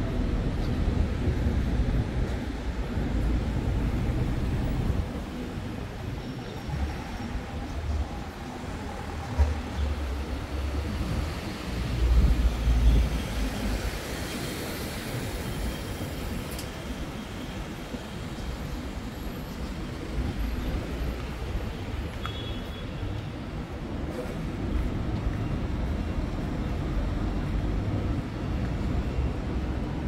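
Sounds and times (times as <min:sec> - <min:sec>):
street noise: 0:00.0 - 0:30.0
passing traffic rumble: 0:23.2 - 0:30.0.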